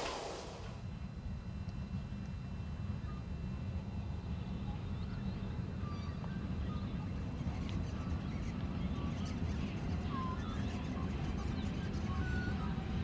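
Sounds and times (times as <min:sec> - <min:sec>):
distant steam locomotive rumble: 0:00.0 - 0:01.1.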